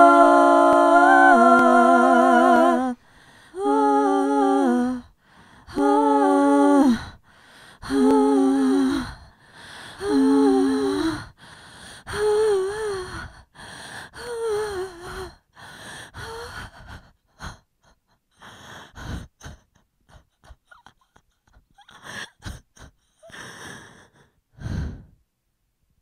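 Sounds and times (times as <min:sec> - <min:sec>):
person moaning: 0:00.0 - 0:03.0
person gasping and breathing: 0:02.8 - 0:03.9, 0:18.3 - 0:25.2.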